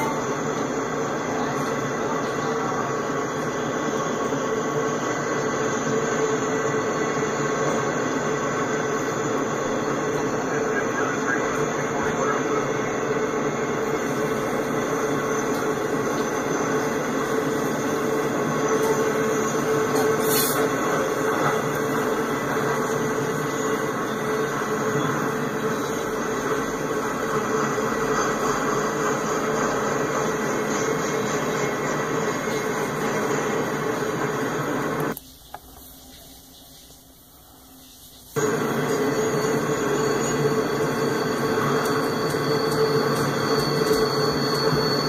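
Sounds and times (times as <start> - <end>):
steel wheels rumbling on rail: 0.0 - 35.2, 38.2 - 45.0
wheels squealing on curve: 38.4 - 45.0.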